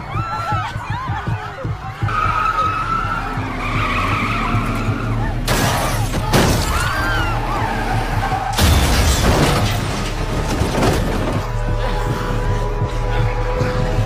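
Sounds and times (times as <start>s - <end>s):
truck tyres screeching: 1.8s - 14.0s
loud crash: 8.5s - 11.6s.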